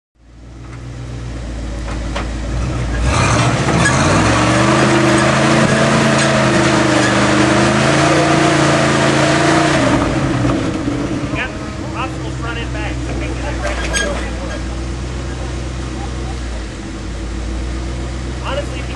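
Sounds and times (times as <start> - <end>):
off-road vehicle engine revving: 0.5 - 18.9.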